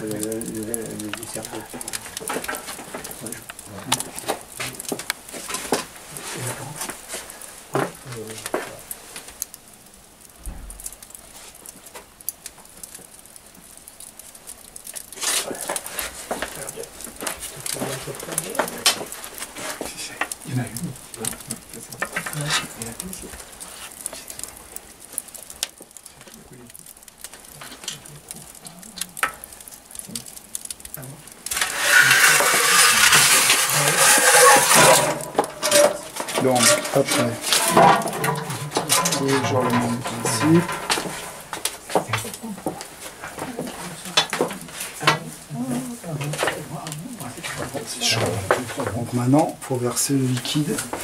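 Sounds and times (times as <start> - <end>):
embers crackling and ticking: 0.0 - 51.0
low thump: 10.4 - 10.8
pan scraping across oven floor: 31.5 - 42.3.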